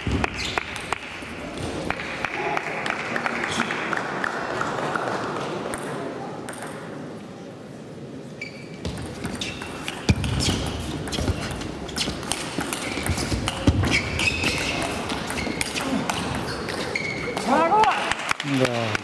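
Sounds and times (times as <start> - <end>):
shoes squeaking on floor: 8.4 - 17.6.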